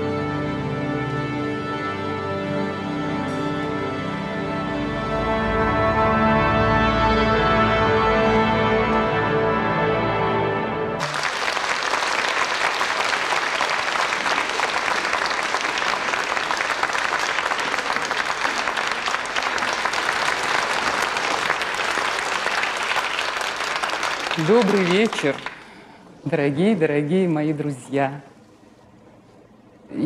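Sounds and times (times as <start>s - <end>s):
audience applauding: 11.0s - 25.9s.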